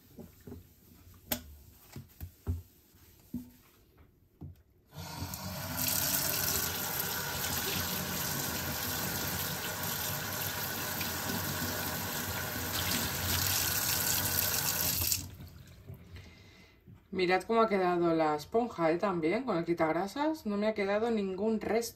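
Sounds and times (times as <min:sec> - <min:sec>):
tap water running into steel sink: 0:05.0 - 0:15.7.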